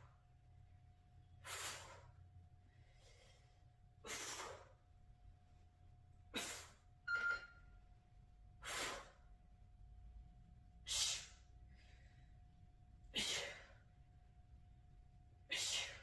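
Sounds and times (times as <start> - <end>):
faint steady hum: 0.0 - 16.0
person breathing hard: 1.4 - 4.8, 10.8 - 13.9.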